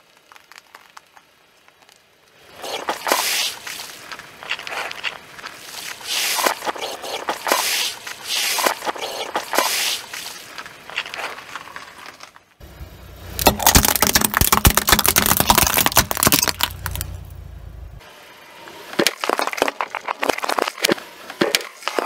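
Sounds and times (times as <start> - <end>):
rubber toy squelching: 2.5 - 12.2
plastic cases cracking: 13.4 - 17.2
low rumble: 15.6 - 18.0.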